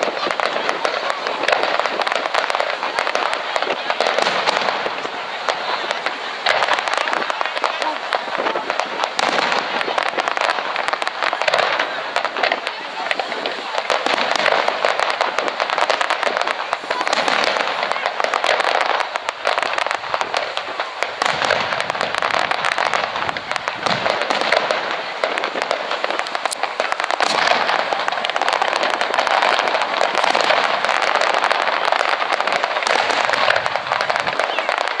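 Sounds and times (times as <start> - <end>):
fireworks popping and crackling: 0.0 - 35.0.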